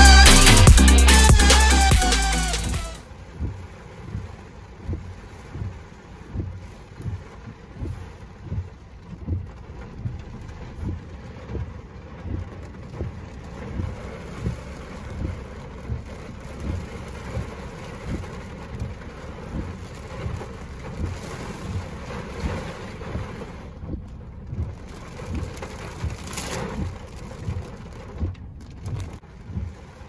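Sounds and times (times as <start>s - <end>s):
low thumps: 0.0s - 23.0s
steady rain: 0.0s - 30.0s.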